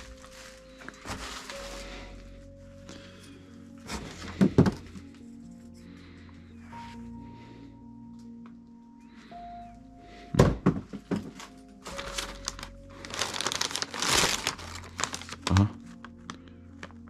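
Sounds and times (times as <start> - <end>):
packaging crinkling and rustling: 0.0 - 2.3, 11.1 - 17.0
background music: 0.0 - 17.0.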